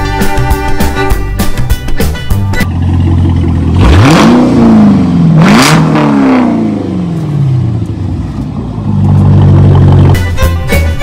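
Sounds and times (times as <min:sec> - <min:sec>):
car engine starting and revving: 0:02.7 - 0:10.3.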